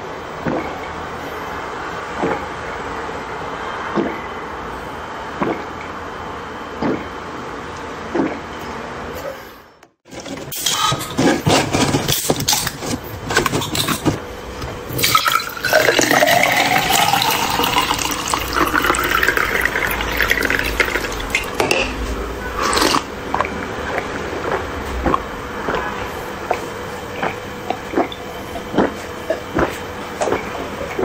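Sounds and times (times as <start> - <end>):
milk tea pouring into glass: 15.0 - 21.3.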